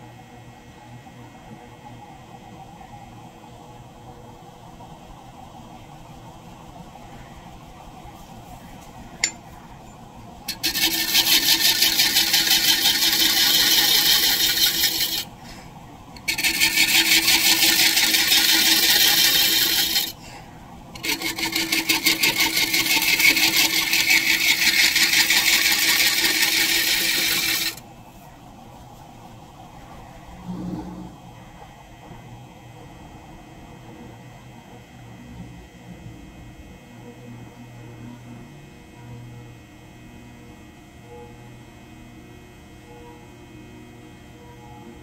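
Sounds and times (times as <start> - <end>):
lathe scraper scraping hiss: 10.5 - 15.3, 16.2 - 20.2, 21.0 - 27.8
lathe running: 10.5 - 15.4, 16.2 - 20.2, 20.9 - 27.8.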